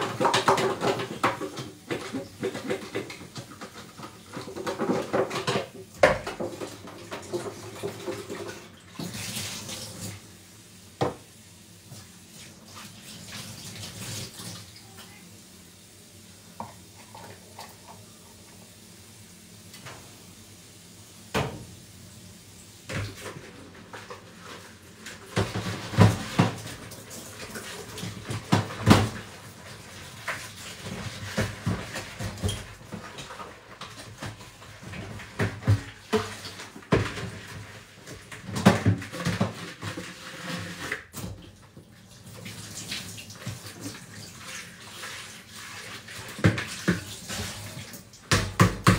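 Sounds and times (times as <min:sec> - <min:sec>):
dishes knocking and clattering: 0:00.0 - 0:08.6, 0:25.2 - 0:29.3, 0:30.3 - 0:40.6, 0:48.3 - 0:48.9
running tap water: 0:00.0 - 0:48.9.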